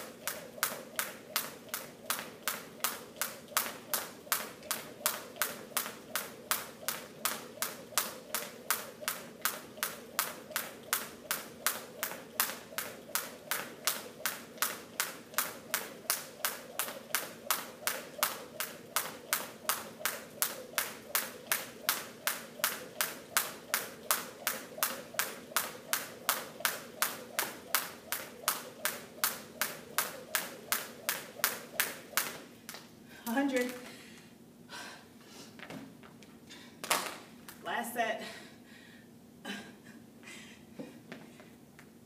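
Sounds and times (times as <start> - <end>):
jump rope slapping floor: 0.0 - 34.0, 36.8 - 37.6.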